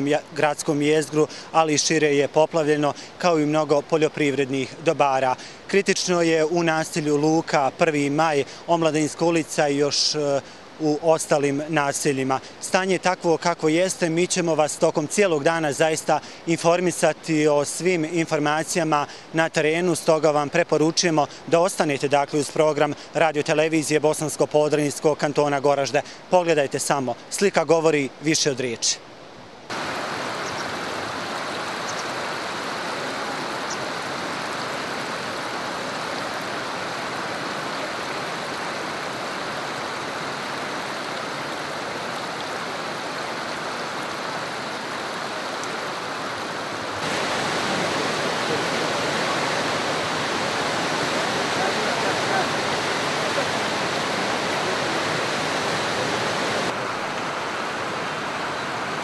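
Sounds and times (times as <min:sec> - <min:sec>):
river water rushing: 0:00.0 - 0:59.0.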